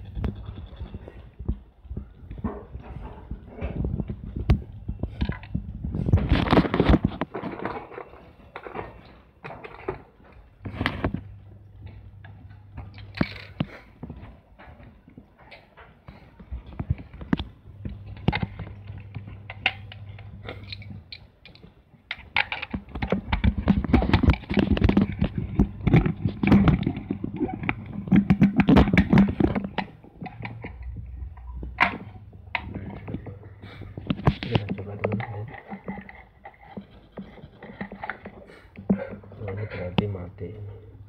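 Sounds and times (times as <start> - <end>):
cables rustling and knocking: 0.0 - 40.8
low hum: 10.5 - 13.7, 23.1 - 36.2.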